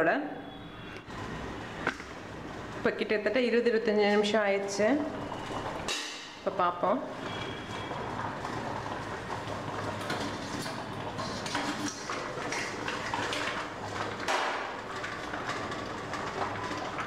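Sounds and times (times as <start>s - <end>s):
metal lid scraping on pot: 10.1s - 12.8s.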